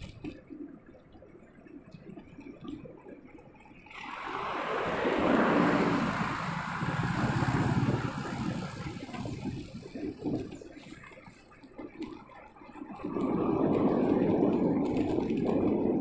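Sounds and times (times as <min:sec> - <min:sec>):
truck passing: 0:03.9 - 0:10.6
wind buffeting microphone: 0:03.9 - 0:11.0, 0:12.8 - 0:16.0.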